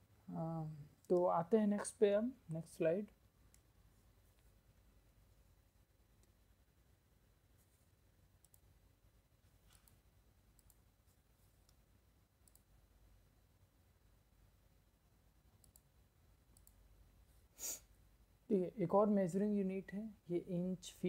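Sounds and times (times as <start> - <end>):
faint mouse clicks: 3.4 - 3.7, 8.4 - 8.7, 9.6 - 10.9, 11.6 - 12.8, 15.5 - 16.9.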